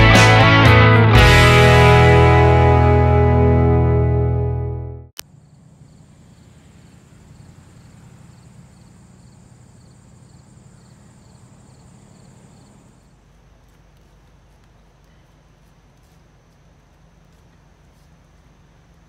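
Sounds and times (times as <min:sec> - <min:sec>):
guitar music: 0:00.0 - 0:05.1
low hum: 0:00.0 - 0:19.0
high insect buzz: 0:05.3 - 0:13.1.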